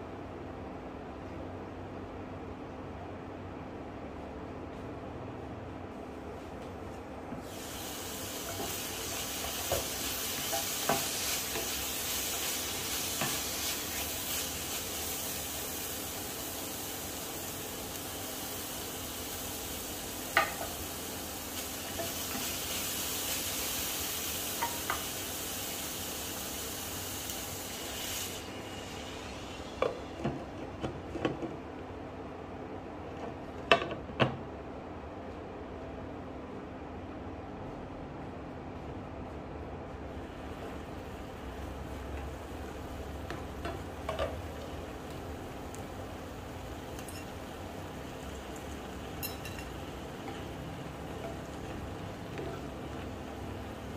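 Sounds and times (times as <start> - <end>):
food sizzling in a frying pan: 7.4 - 30.6, 40.1 - 53.9
glass lid clinks: 47.0 - 47.4, 49.2 - 49.7
utensil clinking against pan: 49.2 - 49.8.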